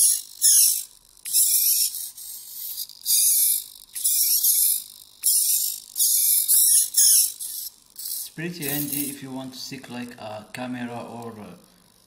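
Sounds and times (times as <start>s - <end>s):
servo motors buzzing: 0.0s - 9.6s.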